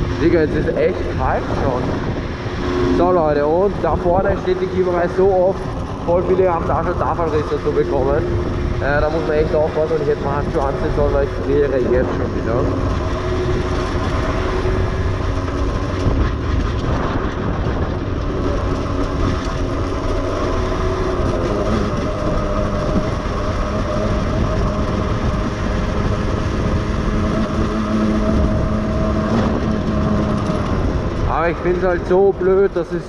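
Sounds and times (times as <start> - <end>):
two-stroke moped engine running: 0.0 - 32.8
wind rush on microphone: 0.0 - 33.0.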